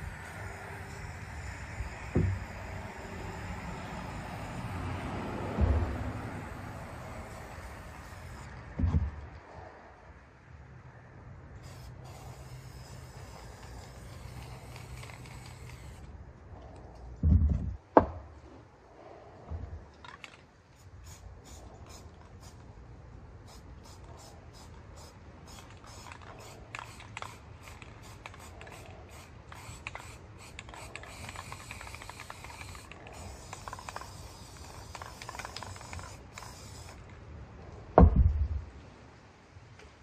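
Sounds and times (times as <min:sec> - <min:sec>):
spray paint can hissing: 0:00.0 - 0:04.8, 0:05.8 - 0:08.5, 0:11.6 - 0:16.0, 0:20.8 - 0:22.7, 0:23.4 - 0:37.1.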